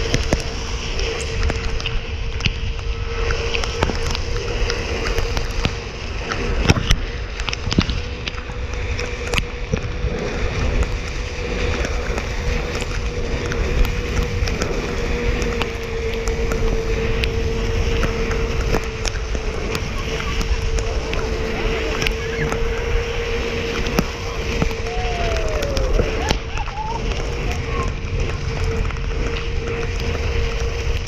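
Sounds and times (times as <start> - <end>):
electric motor whine: 0.0 - 31.0
raindrops ticking on camera: 0.0 - 31.0
tyre hiss on wet pavement: 0.0 - 31.0
wind rush: 0.0 - 31.0.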